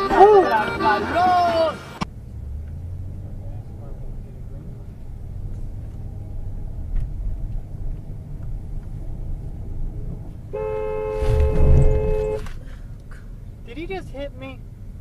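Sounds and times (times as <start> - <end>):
road noise: 0.0 - 15.0
vehicle engine rumble: 0.0 - 15.0
car horn blast: 10.5 - 12.6.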